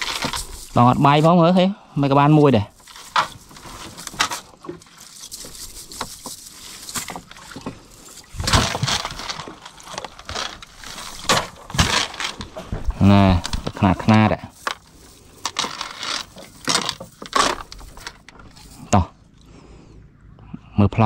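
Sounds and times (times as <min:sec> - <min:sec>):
net clattering: 0:00.0 - 0:01.5, 0:02.7 - 0:18.9
net mesh rustling and clicking: 0:02.7 - 0:18.8.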